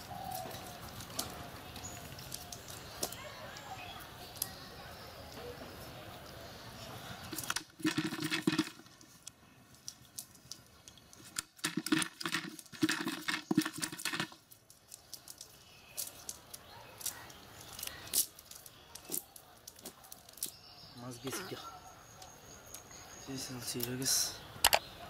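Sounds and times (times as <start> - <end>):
fish slapping in plastic bucket: 7.3 - 8.9, 11.2 - 14.4.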